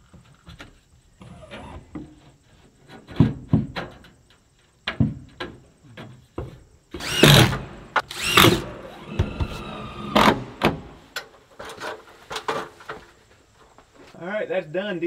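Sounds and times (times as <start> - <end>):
small electric motor whirring: 7.0 - 10.6.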